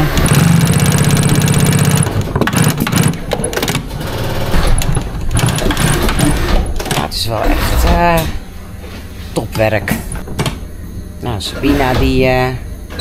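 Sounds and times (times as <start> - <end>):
machine clicks and knocks: 0.0 - 8.4, 9.6 - 10.6
sewing machine stitching: 0.0 - 8.4.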